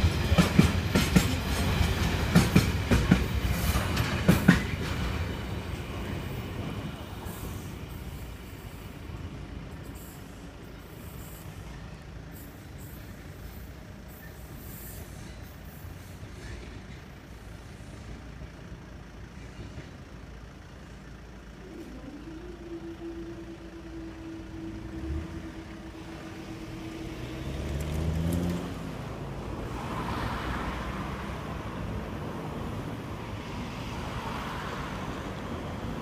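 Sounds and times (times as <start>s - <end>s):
crossing barriers humming: 0.0s - 36.0s
car engine passing: 22.4s - 35.5s
tyre noise on road: 23.8s - 36.0s.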